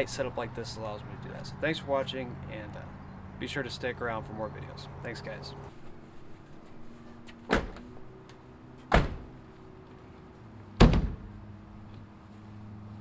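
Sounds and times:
sharp slams: 8.9 - 9.3, 10.8 - 11.4.

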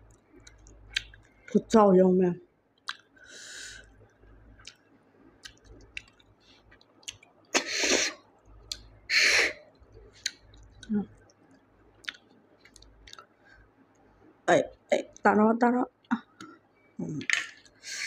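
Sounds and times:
wet chewing clicks: 0.1 - 1.5, 2.8 - 3.2, 5.4 - 7.4, 10.1 - 13.3
person slurping snails: 7.6 - 8.2.

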